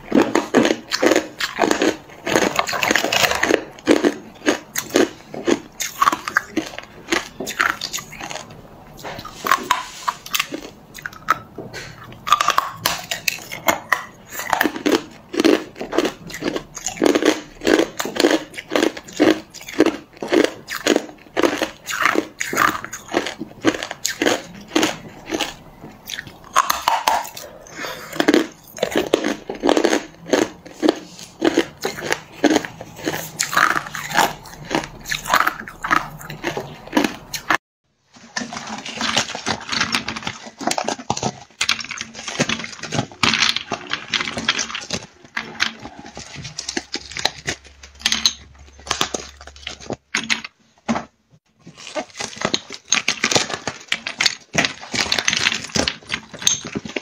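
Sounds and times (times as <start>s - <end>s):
ice being chewed crunching: 0.0s - 37.6s, 38.2s - 50.6s, 51.6s - 57.0s.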